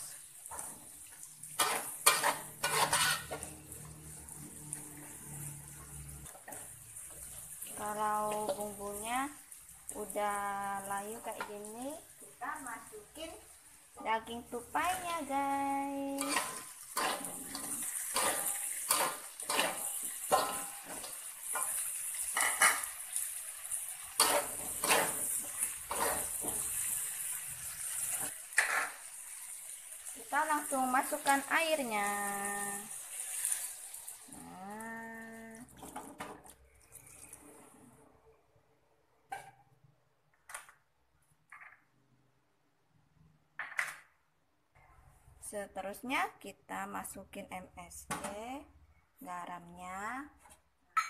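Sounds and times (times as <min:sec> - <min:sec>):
food sizzling in oil: 0:00.0 - 0:37.6
metal spatula scraping a wok: 0:01.5 - 0:04.2, 0:16.2 - 0:22.9, 0:24.1 - 0:27.2, 0:27.9 - 0:29.0.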